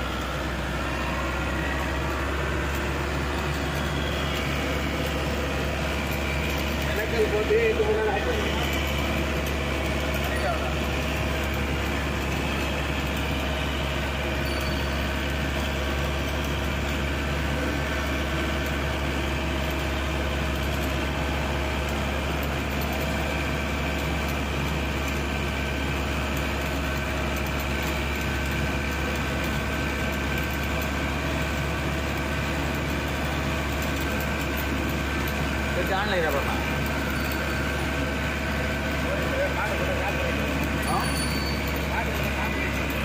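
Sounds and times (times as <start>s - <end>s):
bus engine running: 0.0s - 43.0s.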